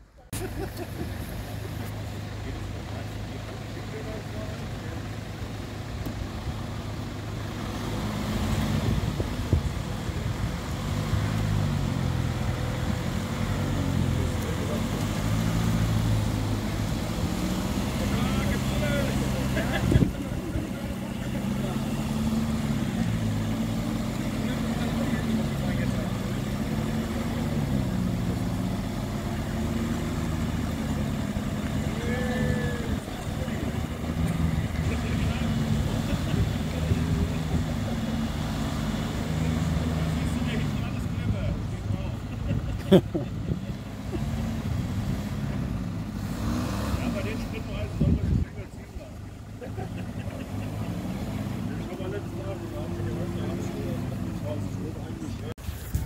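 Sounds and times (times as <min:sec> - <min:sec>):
vehicle engine running: 0:00.0 - 0:56.0.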